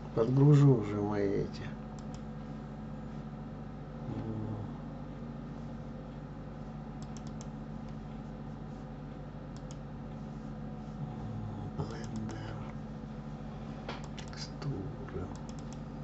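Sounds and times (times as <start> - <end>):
low electrical hum: 0.0 - 16.0
computer mouse clicks: 2.0 - 2.3, 7.0 - 8.0, 9.5 - 9.8, 11.8 - 12.5, 13.9 - 14.6, 15.2 - 15.8.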